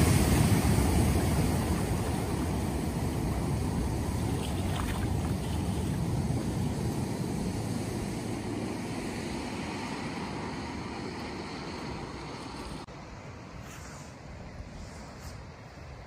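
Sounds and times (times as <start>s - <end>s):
car splashing through water: 0.0s - 10.5s
floodwater rushing over road: 0.0s - 12.9s.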